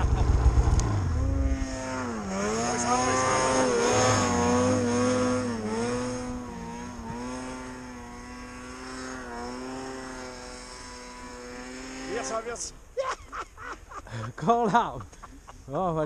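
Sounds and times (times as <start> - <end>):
snowmobile engine revving: 0.0 - 12.8.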